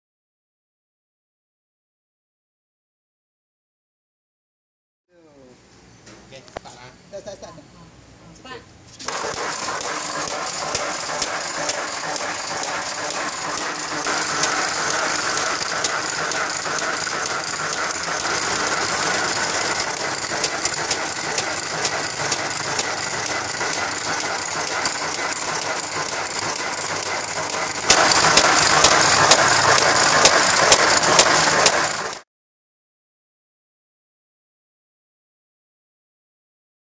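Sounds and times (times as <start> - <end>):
slicing machine rattling: 9.0 - 32.2.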